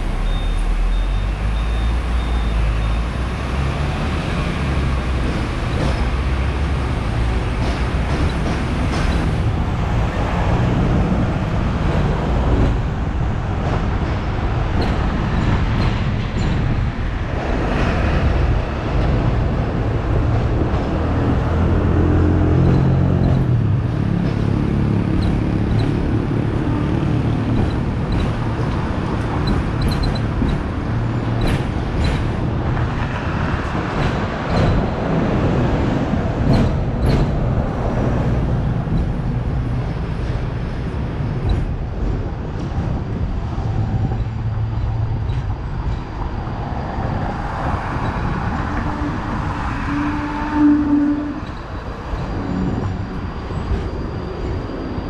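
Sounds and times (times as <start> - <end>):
street traffic: 0.0 - 55.0
tram rumbling: 0.0 - 55.0
sharp clicks and knocks: 7.0 - 9.5, 22.6 - 35.0.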